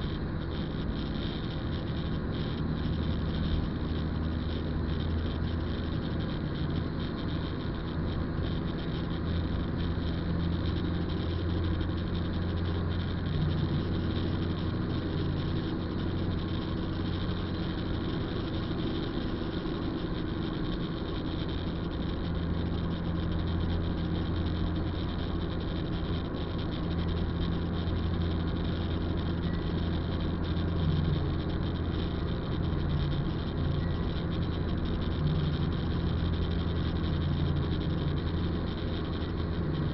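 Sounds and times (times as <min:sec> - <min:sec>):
car engine hum inside cabin: 0:00.0 - 0:39.9.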